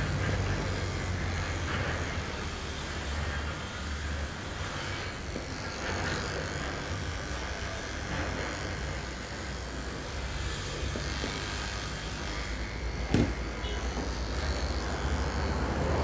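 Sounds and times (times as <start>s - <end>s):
electric hair clippers buzzing: 0.0s - 16.0s.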